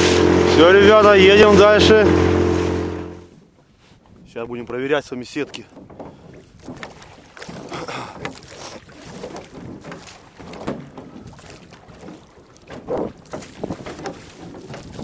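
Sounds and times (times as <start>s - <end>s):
water splashing around boat: 0.0s - 15.0s
wind on microphone: 12.7s - 15.0s.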